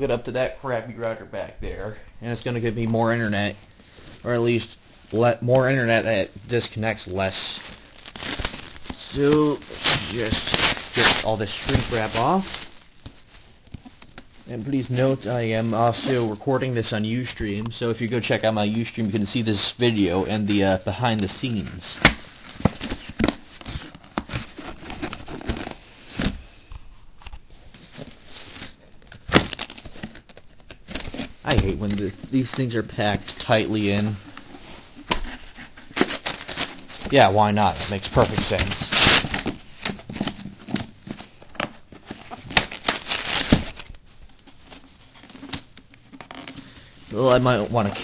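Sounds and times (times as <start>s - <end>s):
plastic wrap crinkling and tearing: 2.5s - 26.4s, 27.2s - 48.0s
cardboard box rustling and scraping: 31.0s - 43.9s.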